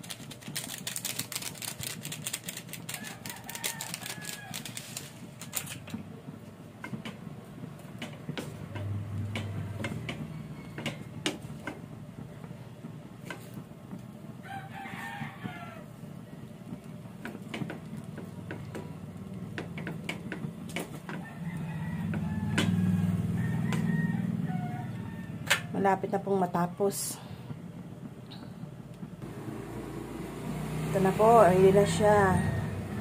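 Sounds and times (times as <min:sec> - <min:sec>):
rooster crowing: 0:02.9 - 0:05.1, 0:09.4 - 0:11.1, 0:14.4 - 0:16.0, 0:21.1 - 0:25.8.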